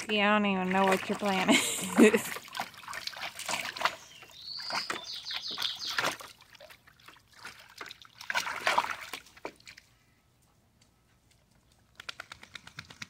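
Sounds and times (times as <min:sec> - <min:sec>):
dog splashing in water: 0:00.6 - 0:09.8.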